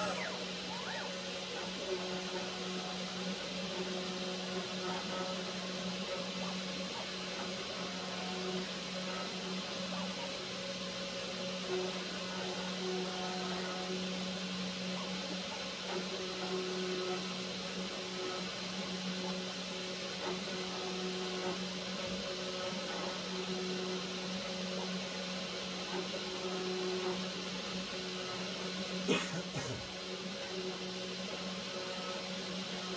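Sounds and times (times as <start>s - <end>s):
metal cutting noise: 0.0s - 1.2s.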